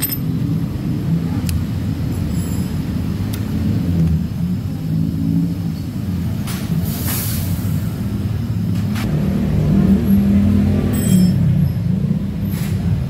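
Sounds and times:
vehicle engine rumbling: 0:00.0 - 0:13.0
short hiss: 0:06.8 - 0:07.8.

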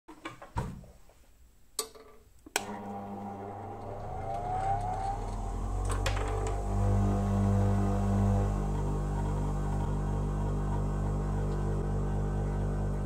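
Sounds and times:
electric motor humming with whine: 0:02.6 - 0:13.0.

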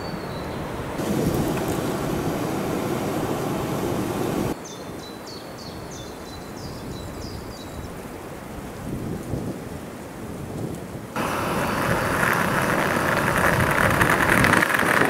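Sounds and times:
woodland background: 0:00.0 - 0:15.0
gas stove burner rushing: 0:01.0 - 0:04.6.

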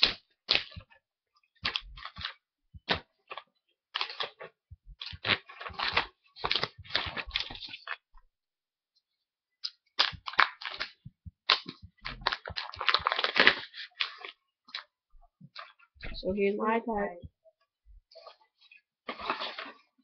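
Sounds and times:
plastic film crinkling: 0:01.6 - 0:08.1, 0:09.6 - 0:14.9, 0:18.1 - 0:20.0.

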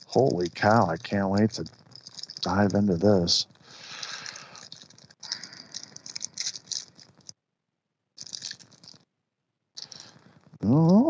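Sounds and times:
plastic wrap crinkling and tearing: 0:03.8 - 0:04.8.

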